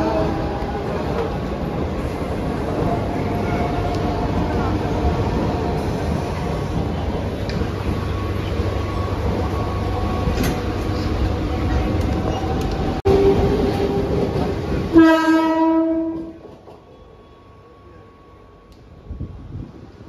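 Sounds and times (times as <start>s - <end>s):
train wheels on rails: 0.0s - 17.1s
train horn blast: 14.9s - 16.4s.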